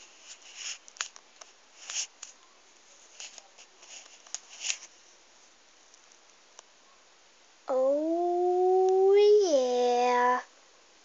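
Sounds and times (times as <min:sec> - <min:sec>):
low room hiss: 0:00.0 - 0:11.0.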